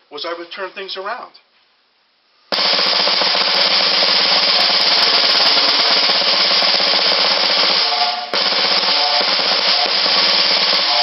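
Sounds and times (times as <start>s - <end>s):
snare drum roll: 2.5s - 11.0s.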